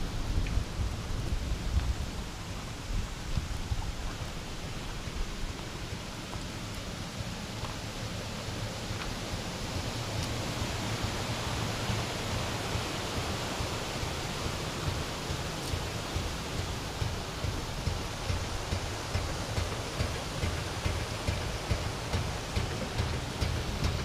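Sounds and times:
stream rushing: 0.0 - 24.0.

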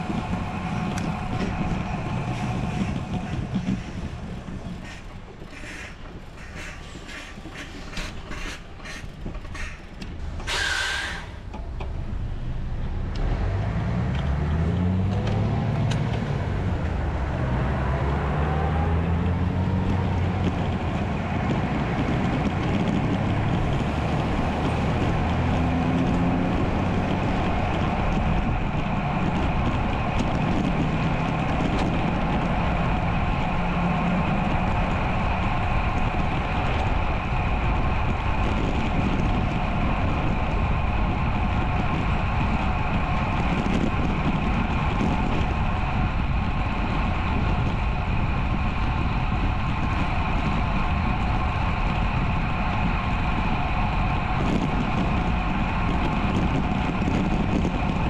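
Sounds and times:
heavy vehicle engine: 0.0 - 58.0
short hiss: 10.5 - 11.4.

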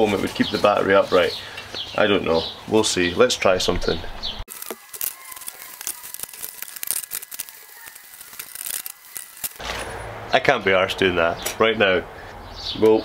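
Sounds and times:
foam rustling against metal: 4.5 - 10.0.

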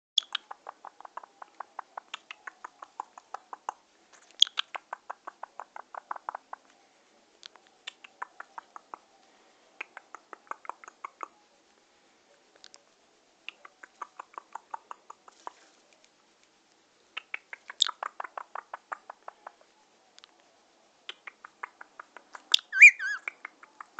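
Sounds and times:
parakeet clicking: 0.2 - 6.6.

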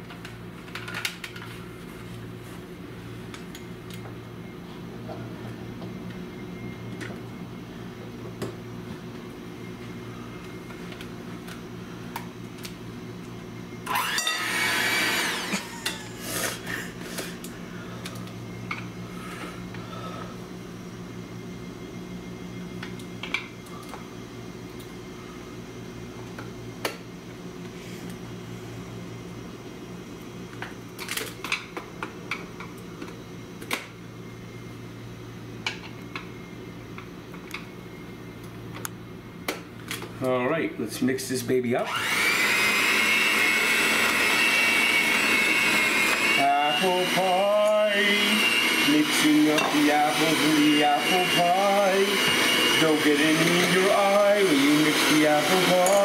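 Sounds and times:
steady low hum: 15.7 - 41.8.

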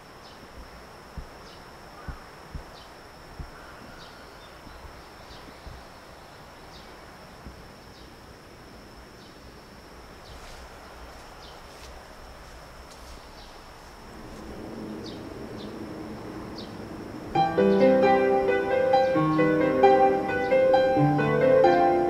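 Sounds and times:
low background rumble: 10.8 - 22.0.

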